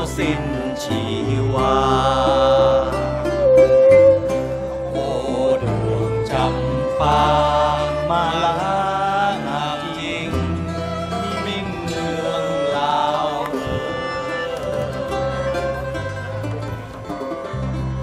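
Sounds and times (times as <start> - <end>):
acoustic folk band playing: 0.0 - 18.0
banjo-style lute: 0.0 - 18.0
held bending melody line: 0.0 - 18.0
strummed acoustic guitars: 0.0 - 18.0.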